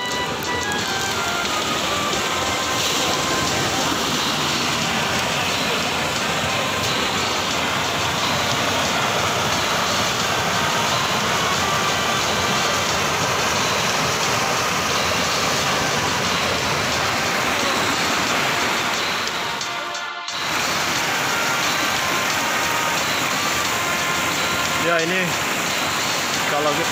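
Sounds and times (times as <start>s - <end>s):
stream rushing over rocks: 0.0s - 26.9s.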